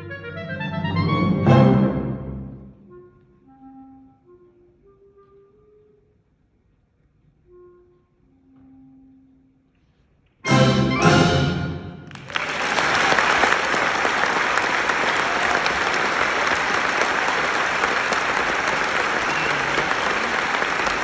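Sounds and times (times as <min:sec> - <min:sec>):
clarinet and orchestra closing chords: 0:00.0 - 0:06.2, 0:10.4 - 0:12.5
audience applause: 0:12.0 - 0:21.0.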